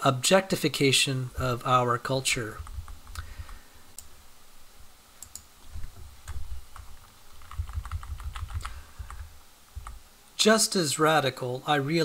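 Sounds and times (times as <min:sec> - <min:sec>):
dull low thumps: 0:02.5 - 0:03.2, 0:05.7 - 0:10.0
computer keys clicking: 0:05.2 - 0:09.2, 0:09.8 - 0:10.0.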